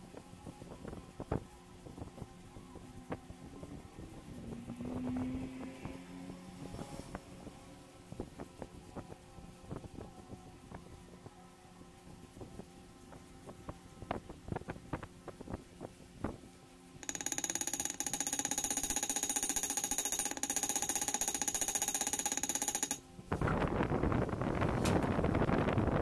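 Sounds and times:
fast-pulsing buzz: 17.0s - 23.0s.

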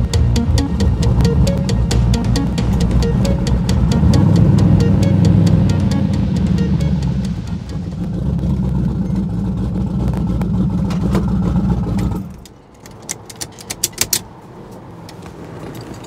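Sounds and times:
car engine running lumpy: 0.0s - 12.5s.

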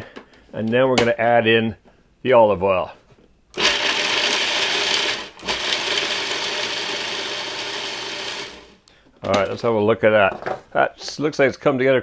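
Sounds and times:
food processor grinding: 3.6s - 8.8s.

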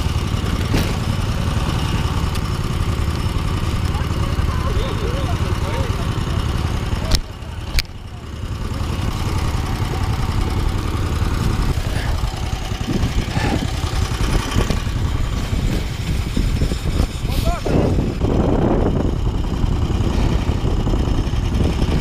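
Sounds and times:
small petrol engine idling: 0.0s - 22.0s
sharp clicks: 7.1s - 8.0s.

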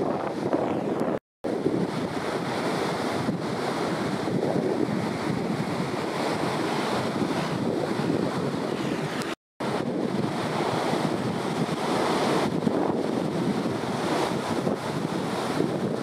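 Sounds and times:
ocean surf breaking: 0.0s - 16.0s
wind on microphone: 0.0s - 16.0s.

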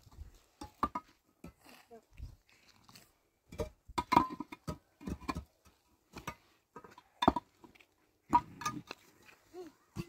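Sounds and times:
rocks knocking on concrete blocks: 3.5s - 9.0s.

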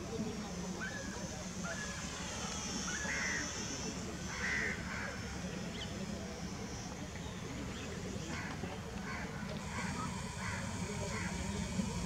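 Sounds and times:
model plane motor whine overhead: 0.0s - 12.0s.

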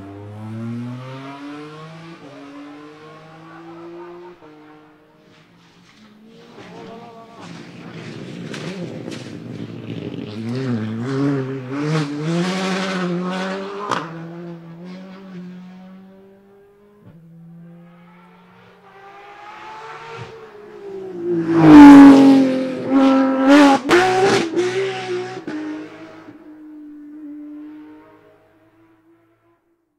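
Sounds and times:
rally car accelerating full throttle: 0.0s - 29.7s
rally car passing flat out: 6.0s - 16.2s, 17.4s - 26.4s.

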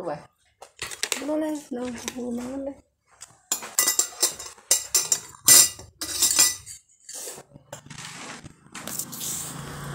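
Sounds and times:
spoons clinking on dishes: 3.5s - 7.4s.

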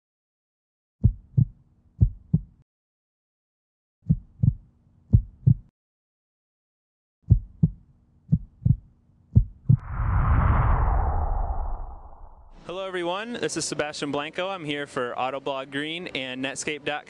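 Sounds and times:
heartbeat thumps: 1.0s - 2.6s, 4.0s - 5.7s, 7.2s - 9.9s
loud rushing whoosh: 9.8s - 12.6s.

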